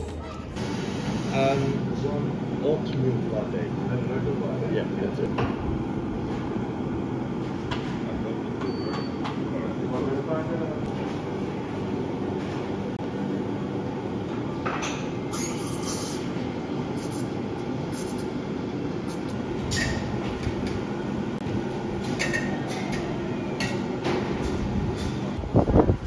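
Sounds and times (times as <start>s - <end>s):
low machine hum: 0.0s - 26.0s
espresso machine hisses: 15.4s - 16.3s.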